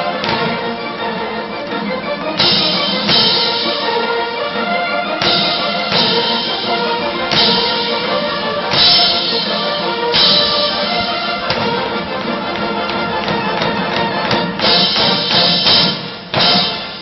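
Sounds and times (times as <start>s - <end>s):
military band playing: 0.0s - 17.0s
drum beat: 2.4s - 4.2s, 5.1s - 17.0s.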